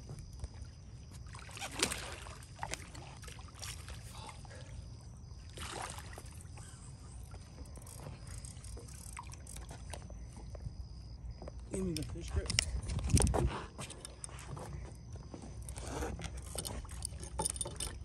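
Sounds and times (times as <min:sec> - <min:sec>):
fish thrashing and splashing water: 0:00.5 - 0:07.0.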